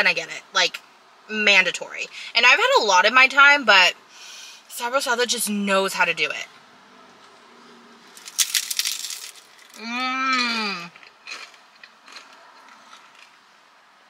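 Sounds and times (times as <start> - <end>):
crunching bite into fried taco: 8.1 - 13.4.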